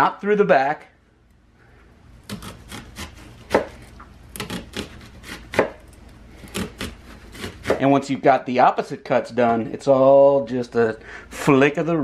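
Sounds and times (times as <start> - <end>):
knife slicing onion on cutting board: 2.3 - 5.8, 6.5 - 7.9.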